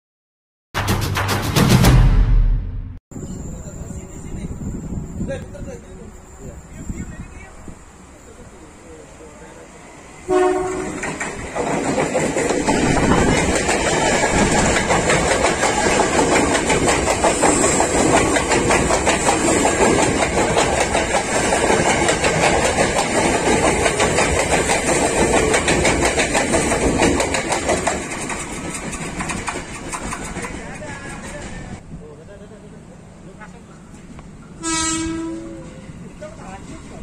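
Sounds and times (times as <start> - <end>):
train passing on rails: 3.1 - 37.0
train horn tone: 10.3 - 11.2, 34.6 - 35.9
wheels clacking over rail joints: 10.6 - 31.8.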